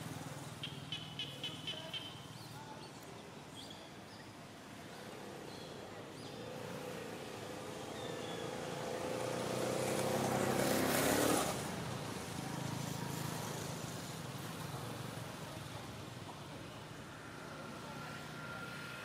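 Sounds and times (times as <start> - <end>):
low steady engine hum: 14.1 - 19.0.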